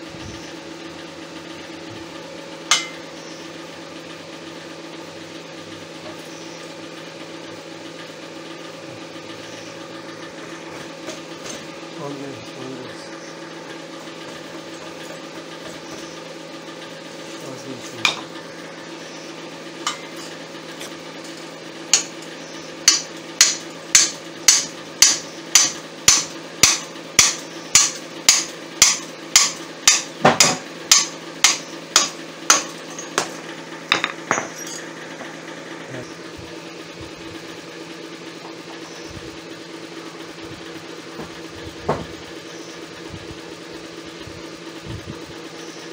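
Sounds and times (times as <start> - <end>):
hammer striking steel pipe: 2.7 - 3.0, 22.9 - 33.3.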